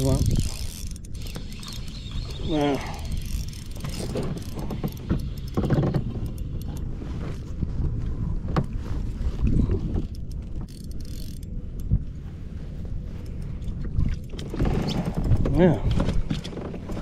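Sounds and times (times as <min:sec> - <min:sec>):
fishing reel clicks and rattles: 0:00.0 - 0:06.9, 0:10.0 - 0:11.9
wind buffeting microphone: 0:00.0 - 0:17.0.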